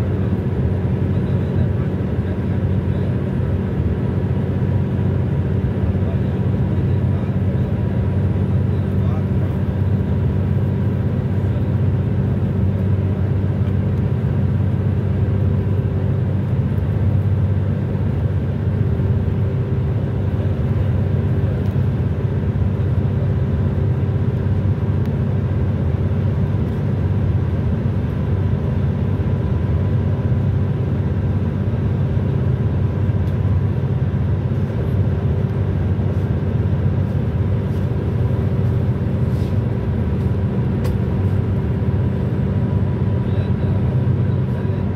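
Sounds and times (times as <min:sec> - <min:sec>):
car road noise from inside: 0:00.0 - 0:44.9.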